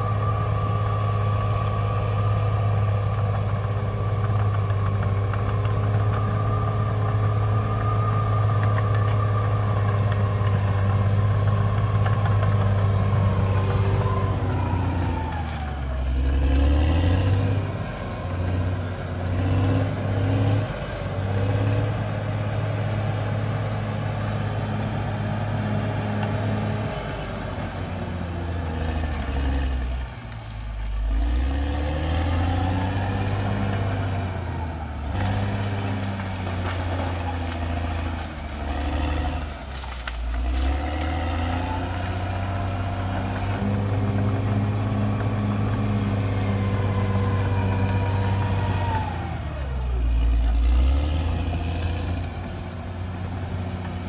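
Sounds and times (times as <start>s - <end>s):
bulldozer diesel engine: 0.0s - 54.0s.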